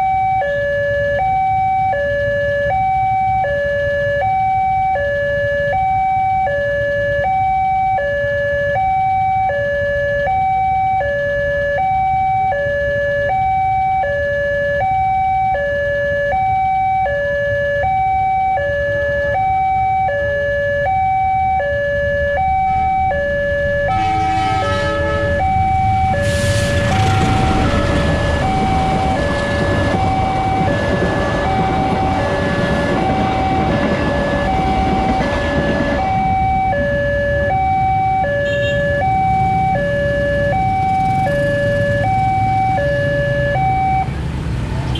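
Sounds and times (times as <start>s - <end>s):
two-tone level-crossing alarm: 0.0s - 44.2s
train rumble and wheel noise: 23.5s - 38.6s.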